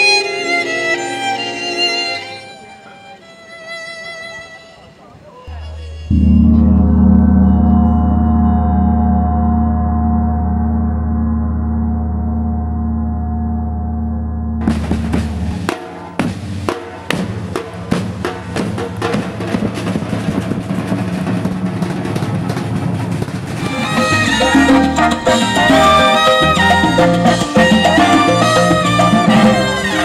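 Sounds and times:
music with pitched instruments: 5.4 - 17.0, 23.6 - 30.0
gong ringing: 6.1 - 16.2
snare and bass drums: 14.6 - 30.0.

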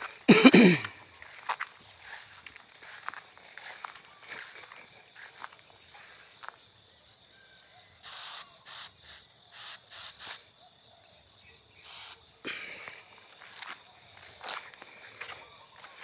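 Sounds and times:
pressure sprayer hissing squirts: 8.0 - 10.4, 11.8 - 12.2.

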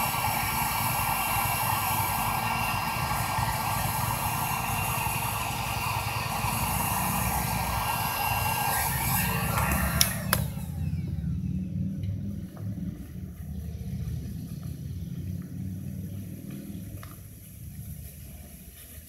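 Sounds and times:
heat gun hissing and whining: 0.0 - 11.2
sharp clicks: 5.7 - 10.9.

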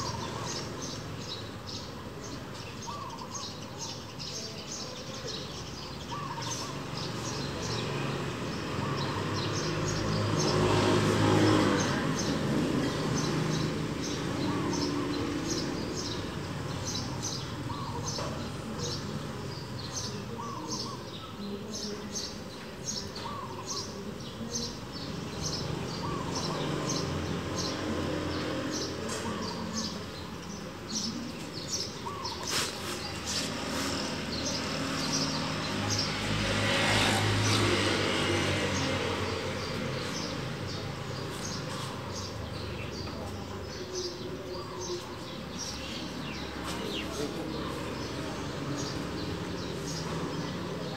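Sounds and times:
low bird calls: 29.0 - 36.2.

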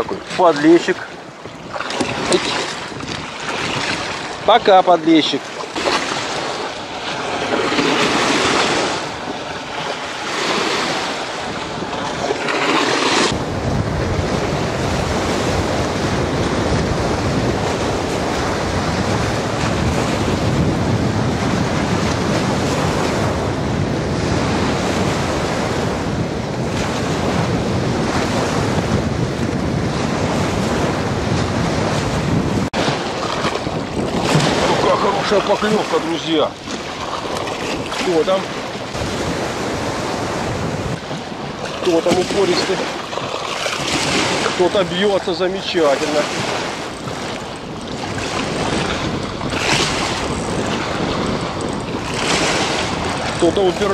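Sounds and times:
waves washing against concrete bank: 0.0 - 53.9
wind rumbling on microphone: 0.0 - 53.9.

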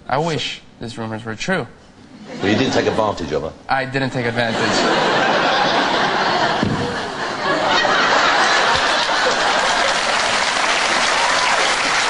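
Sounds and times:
studio audience laughing: 2.2 - 3.2, 4.4 - 11.0
audience clapping: 8.2 - 12.0.

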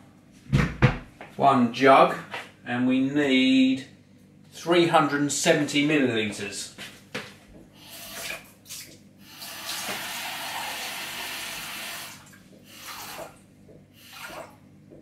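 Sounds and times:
tap water running into jug: 9.3 - 13.4.

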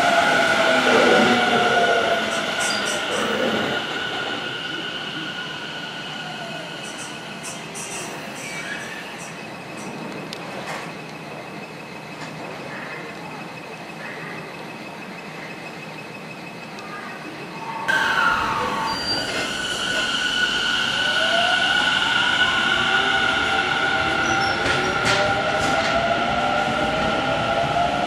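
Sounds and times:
high squeal: 17.3 - 25.3.

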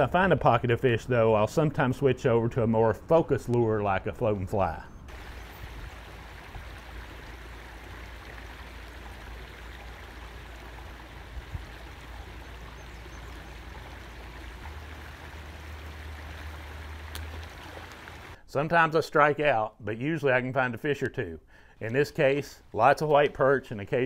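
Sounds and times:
creek water running: 5.1 - 18.4.

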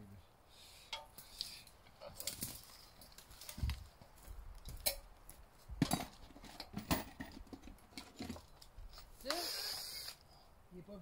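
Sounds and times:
knocks and clacks of lumber: 5.7 - 8.6.

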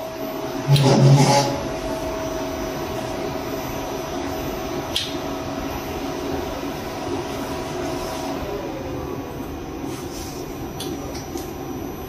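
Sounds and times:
machinery drone and whine: 0.0 - 12.0
sharp click: 4.9 - 5.2.

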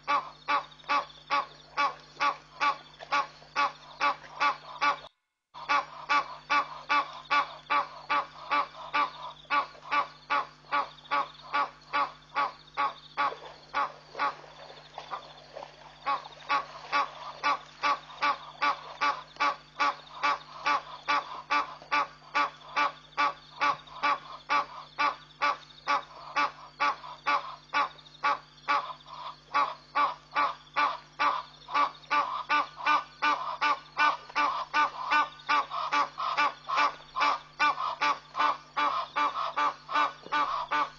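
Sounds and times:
night animal calling: 0.0 - 40.9.

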